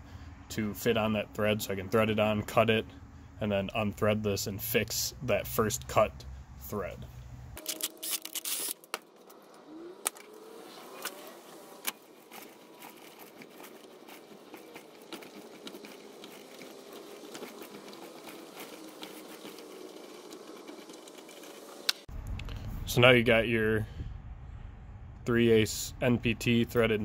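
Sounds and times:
short rising whine: 7.6 - 12.0, 22.1 - 27.0.

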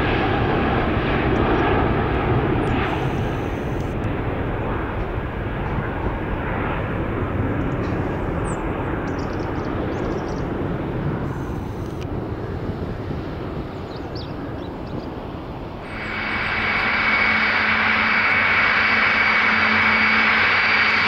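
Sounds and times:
jet engine roar: 0.0 - 21.0.

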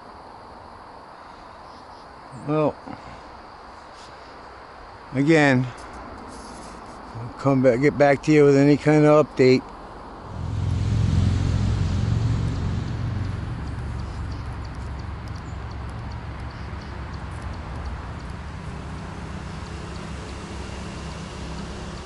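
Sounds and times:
road vehicle passing: 10.0 - 22.0
steady low hum: 10.0 - 22.0
faint high ticks: 12.8 - 20.4.

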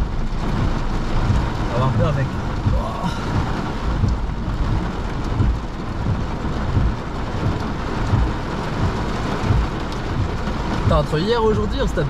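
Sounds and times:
heavy rain drumming on car roof: 0.0 - 12.0
low irregular rumbling: 0.0 - 12.0.

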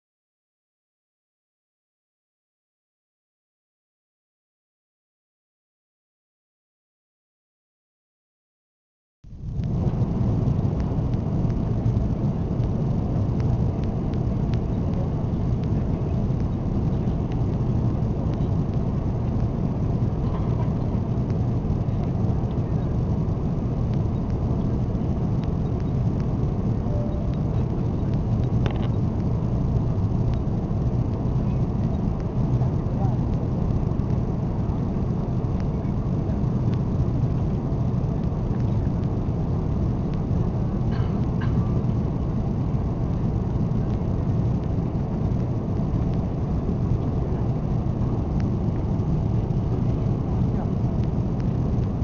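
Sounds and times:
jet engines droning: 9.3 - 52.0.

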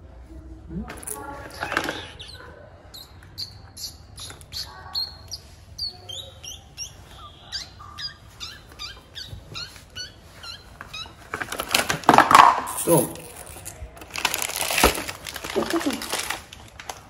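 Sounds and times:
small animal chirping: 0.7 - 11.8
plastic bag crinkling: 9.8 - 17.0.

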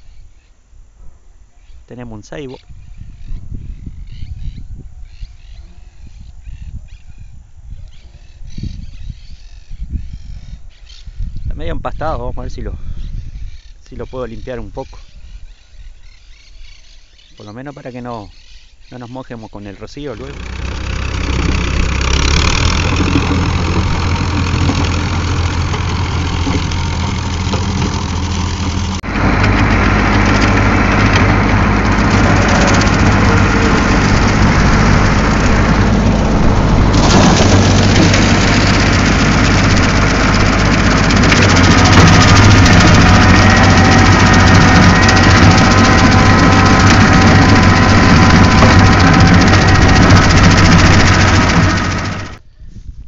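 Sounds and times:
tractor engine running under load: 19.9 - 52.4.

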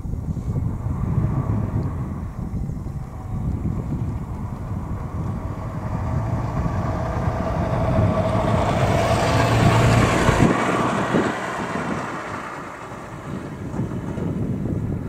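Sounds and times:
car passing on snowy road: 0.3 - 15.0.

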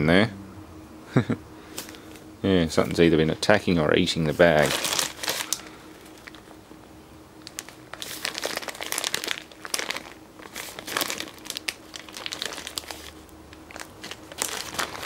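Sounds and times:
plastic bag crinkling: 4.4 - 6.5, 7.4 - 15.0.

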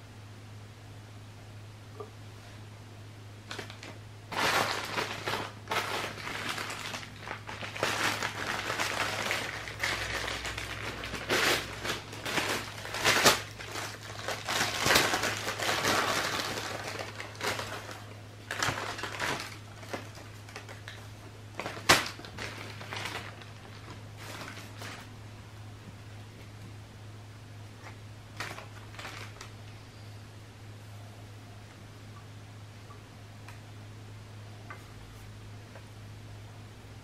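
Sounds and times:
steady low hum: 0.0 - 37.0
crinkling and rustling: 3.4 - 25.1, 27.8 - 29.8.

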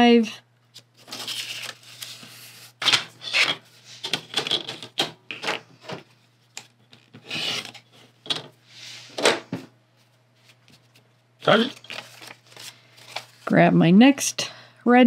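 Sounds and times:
paper and fabric rustling: 0.8 - 4.5, 10.0 - 13.6.

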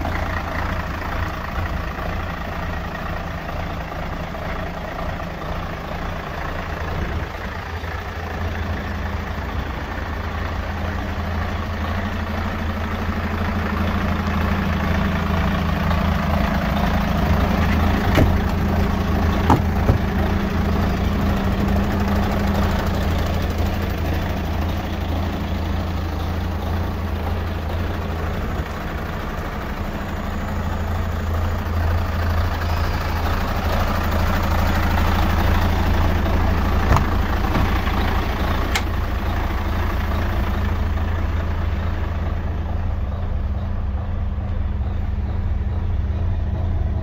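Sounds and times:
diesel truck engine idling: 0.0 - 47.0
brief clicks: 38.7 - 38.9.

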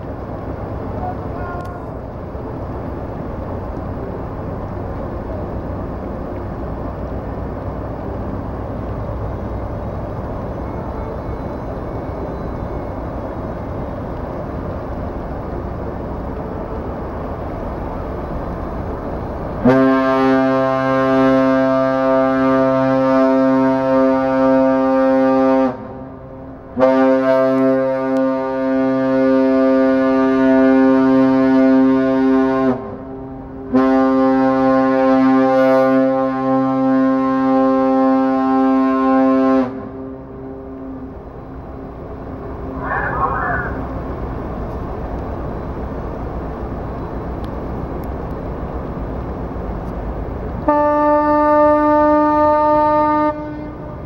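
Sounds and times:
rushing background noise: 0.0 - 19.7, 39.8 - 50.7
ship's horn blasts: 19.6 - 41.1, 50.6 - 54.0.

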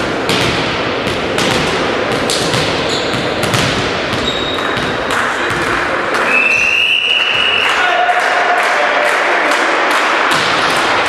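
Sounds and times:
volleyball bouncing on hall floor: 0.0 - 7.8, 9.8 - 11.0
players' voices: 4.2 - 11.0.

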